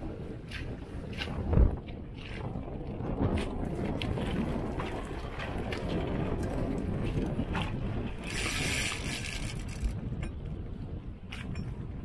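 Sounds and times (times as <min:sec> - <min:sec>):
water washing along hull: 0:00.0 - 0:12.0
wind buffeting microphone: 0:00.0 - 0:12.0.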